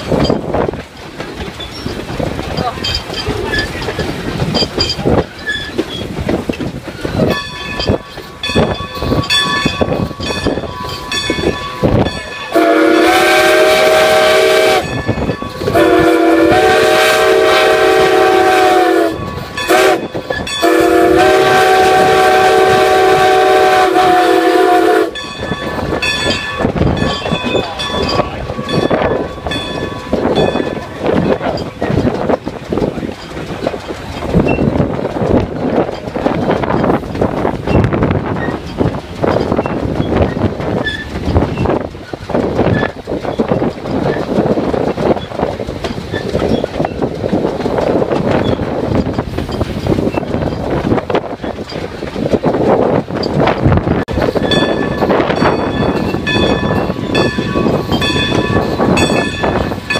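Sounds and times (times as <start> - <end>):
train running rumble: 0.0 - 59.9
train wheels clicking over rail joints: 0.0 - 59.9
steam locomotive chime whistle: 7.2 - 32.1, 54.2 - 59.9.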